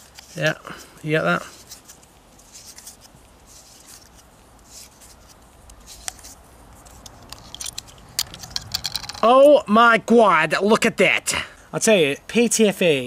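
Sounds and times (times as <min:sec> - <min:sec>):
tape rustling and scratching: 0:00.0 - 0:09.4.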